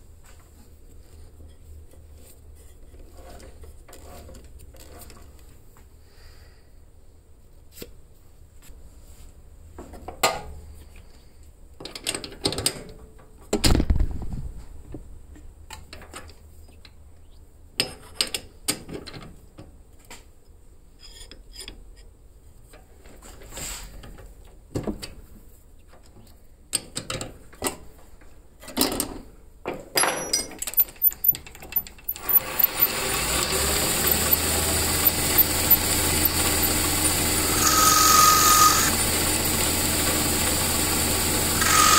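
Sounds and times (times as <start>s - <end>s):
metal lathe running: 32.1s - 41.9s.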